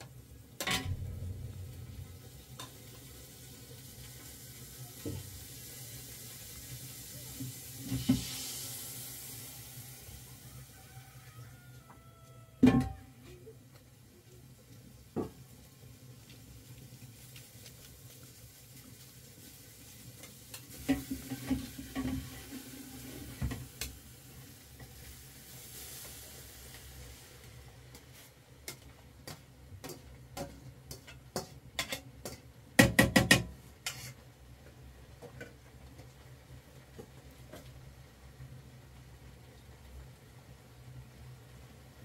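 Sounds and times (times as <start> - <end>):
faint hiss: 0.0 - 32.9.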